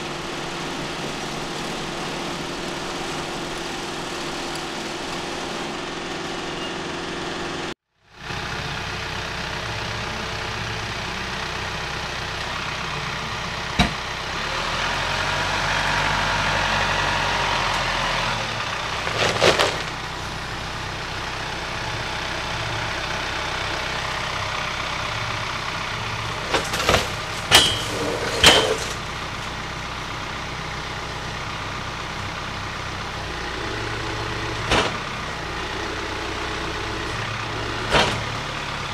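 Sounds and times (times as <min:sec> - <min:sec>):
engine running steadily: 0:00.0 - 0:38.9
tractor running wood chipper: 0:00.0 - 0:38.9
sharp knocks and clanks: 0:13.8 - 0:14.1, 0:26.5 - 0:29.0.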